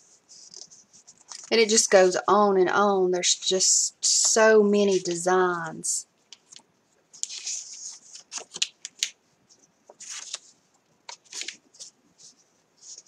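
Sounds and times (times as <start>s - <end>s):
paper sheets rustling: 0.3s - 1.9s, 6.5s - 13.0s.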